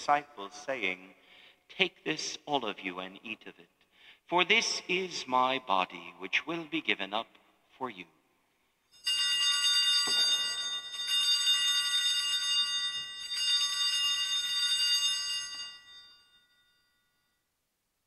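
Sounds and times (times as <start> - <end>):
altar bells jingling: 8.9 - 17.3.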